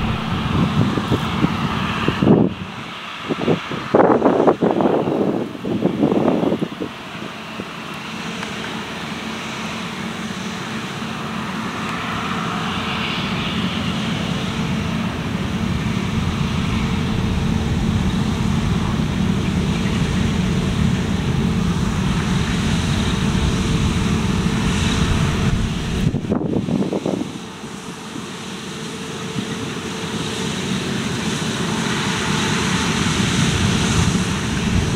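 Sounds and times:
steady hum: 0.0 - 2.7, 15.1 - 26.7, 34.3 - 34.9
combine harvester engine droning: 0.0 - 2.9, 14.4 - 27.8, 31.9 - 34.9.

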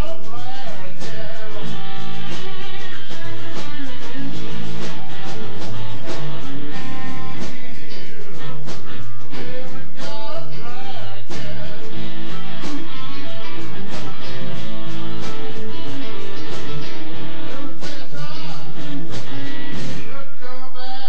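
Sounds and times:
drums: 0.0 - 20.2
bass: 0.0 - 21.0
electric lead guitar: 0.0 - 21.0.

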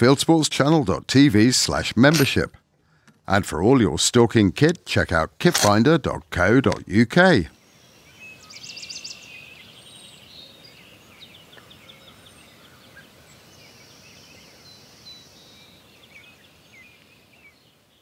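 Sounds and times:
faint steady hiss: 0.0 - 18.0
small birds chirping and trilling: 7.5 - 18.0.

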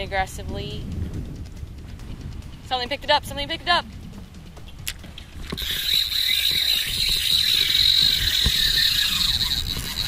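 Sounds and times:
fishing reel drag buzzing: 4.8 - 10.0.

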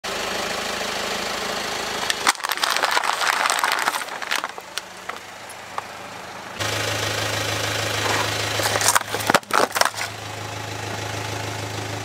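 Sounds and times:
car engine idling: 0.1 - 12.0
beads scattering with sharp clicks: 2.1 - 5.3
plastic cups crunching under tyre: 2.1 - 5.9, 8.0 - 10.2.

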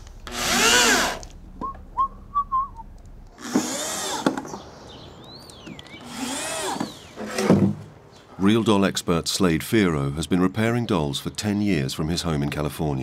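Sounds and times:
cordless drill driving a screw: 0.2 - 1.3, 3.4 - 4.3, 6.0 - 7.4
person whistling: 1.6 - 2.9.

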